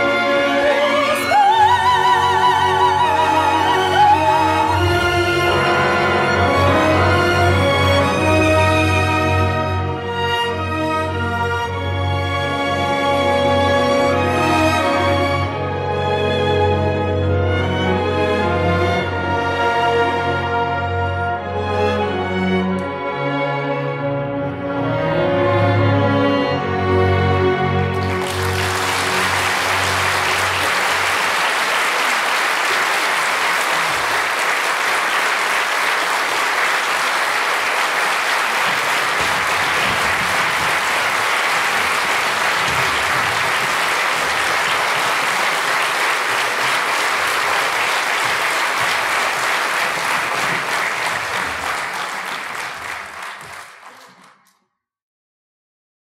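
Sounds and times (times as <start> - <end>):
audience applauding: 0.0 - 9.6, 27.9 - 54.6.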